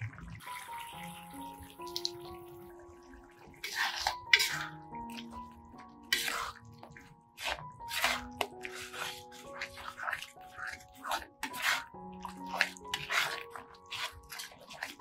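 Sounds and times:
soft background music: 0.0s - 15.0s
spatula stirring sauce in wok: 3.5s - 15.0s.

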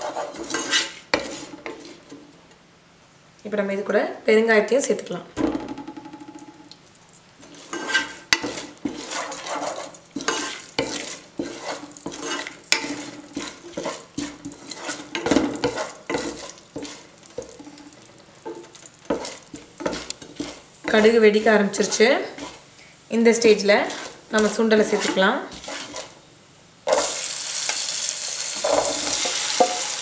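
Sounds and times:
spatula scraping saucepan: 0.0s - 2.0s, 7.4s - 22.7s, 23.3s - 26.2s, 28.6s - 30.0s
frying hiss of hot oil: 7.4s - 26.2s, 26.8s - 30.0s.

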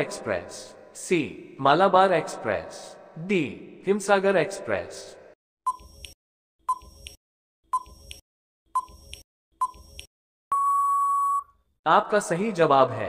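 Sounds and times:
short electronic beeps: 5.7s - 7.1s, 7.7s - 8.0s, 8.8s - 9.8s, 10.5s - 11.5s
long steady beep: 10.5s - 11.5s.

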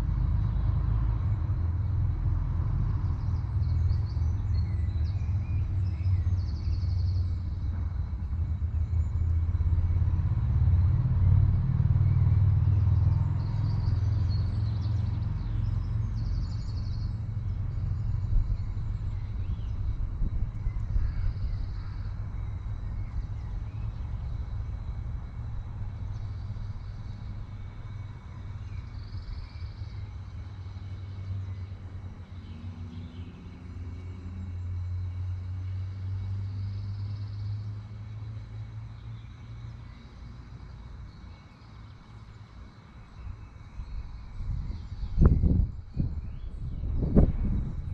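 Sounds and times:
low rumble: 43.8s - 47.9s.

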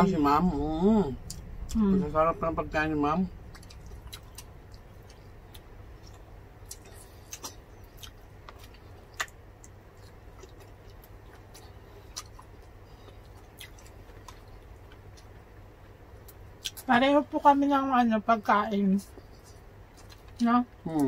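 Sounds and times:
low steady hum: 0.0s - 21.0s
fingers picking at food on plates: 3.4s - 15.4s, 19.0s - 21.0s
chewing clicks and smacks: 3.5s - 15.4s, 19.1s - 20.4s.

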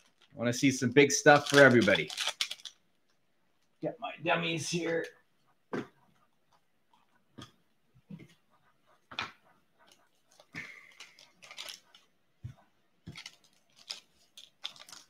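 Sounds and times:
foil wrapper crinkling: 0.0s - 3.0s, 10.3s - 12.1s, 13.1s - 15.0s
foil wrapper tearing: 1.2s - 2.8s, 13.2s - 15.0s.

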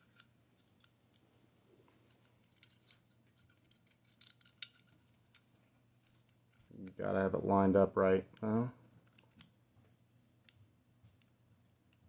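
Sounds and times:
small metal clicks: 0.0s - 1.2s, 2.0s - 7.5s, 8.3s - 9.6s.

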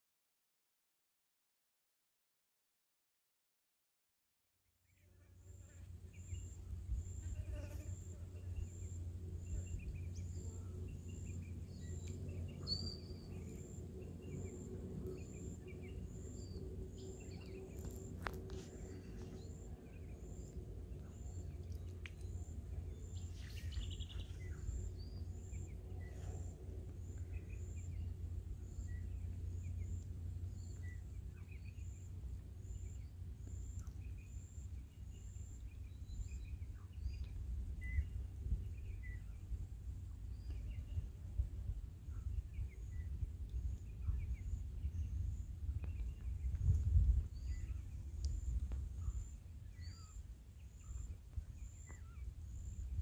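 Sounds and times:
birds chirping: 8.4s - 32.1s
low rumble: 8.4s - 53.0s.

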